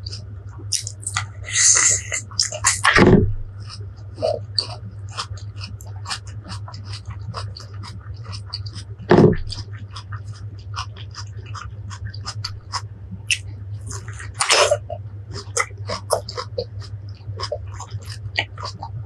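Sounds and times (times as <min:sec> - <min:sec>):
chewing crisp fruit: 0:00.0 - 0:19.0
crunching bites: 0:04.6 - 0:18.9.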